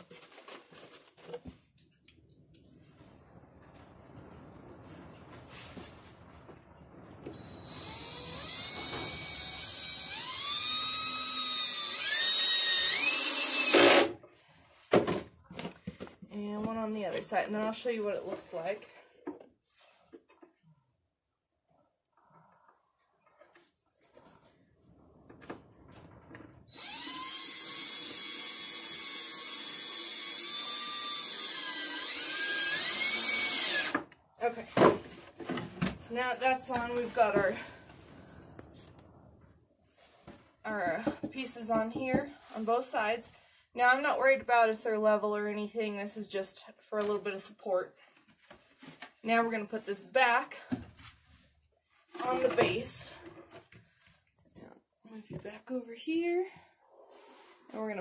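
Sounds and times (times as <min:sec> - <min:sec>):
cordless drill motor whine: 0:07.3 - 0:14.1, 0:26.7 - 0:34.0.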